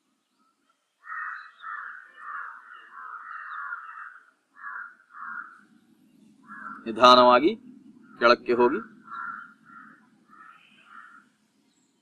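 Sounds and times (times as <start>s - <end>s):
crow cawing: 1.0s - 11.4s.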